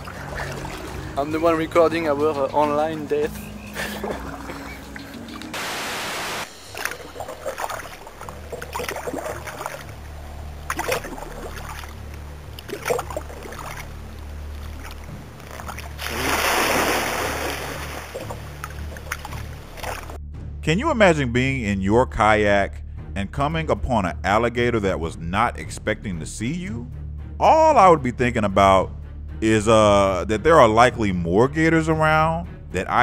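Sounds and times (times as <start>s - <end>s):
small splashes and drips: 0.0s - 1.3s, 6.6s - 20.2s
rush of water noise: 4.0s - 20.2s
loud rushing splash: 5.6s - 12.0s, 15.6s - 20.2s.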